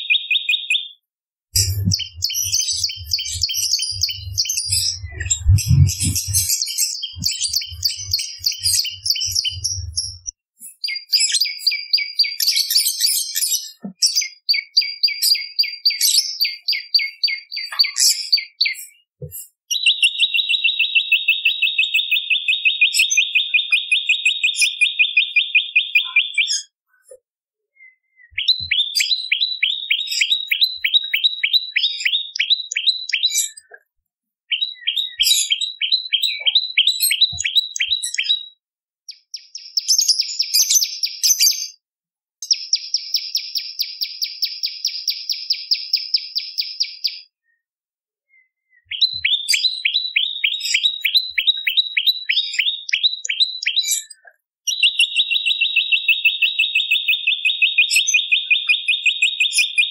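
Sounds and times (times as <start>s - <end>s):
bird chirping rapidly: 0.0s - 1.0s, 1.6s - 13.4s, 19.7s - 26.7s, 28.2s - 33.6s, 48.9s - 53.9s, 54.7s - 59.9s
buzzy high bird trill: 1.6s - 10.3s.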